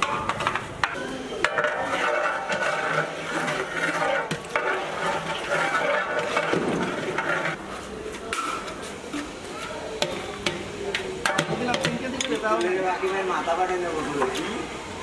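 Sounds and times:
metal ladle scraping a pot: 0:00.0 - 0:07.6.

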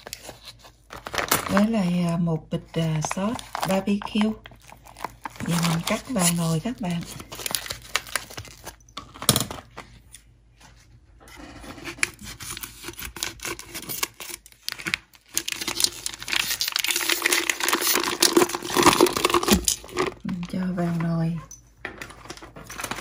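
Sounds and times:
plastic bag crinkling: 0:00.0 - 0:02.0, 0:02.6 - 0:09.2, 0:12.5 - 0:20.8.

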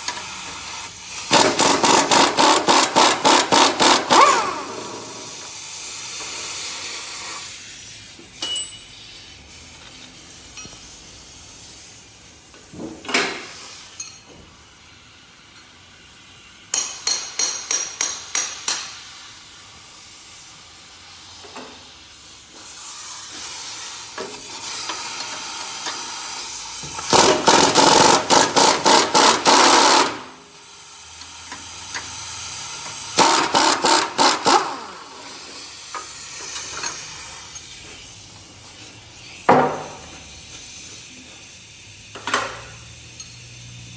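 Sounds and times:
ratchet wrench clicking: 0:31.0 - 0:37.8, 0:41.6 - 0:43.7.

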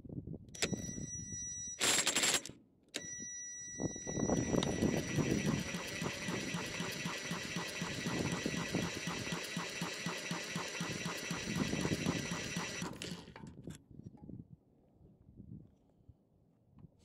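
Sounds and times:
cordless drill cranking engine: 0:04.0 - 0:13.6.

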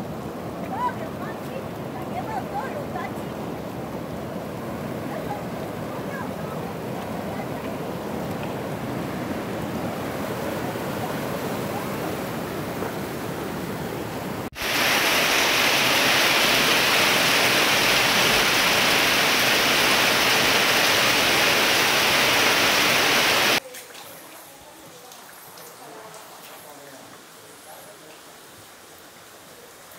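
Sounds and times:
river rushing: 0:00.0 - 0:23.6
heavy rain pouring: 0:14.4 - 0:23.6.

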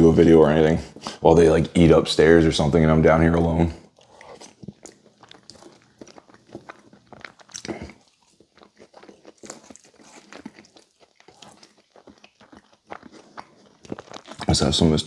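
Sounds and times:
wet chewing and mouth smacks: 0:03.8 - 0:14.9.

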